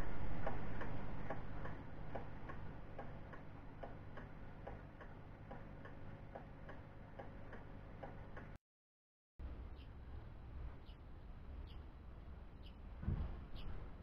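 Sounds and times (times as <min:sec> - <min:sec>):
steady low hum: 0:00.0 - 0:08.6
pendulum clock ticking: 0:00.3 - 0:08.6.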